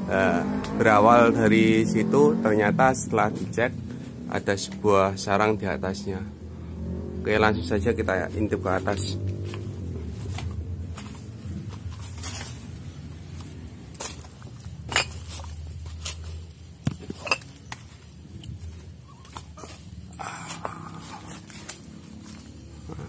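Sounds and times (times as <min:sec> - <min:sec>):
rustling: 0:09.4 - 0:23.0.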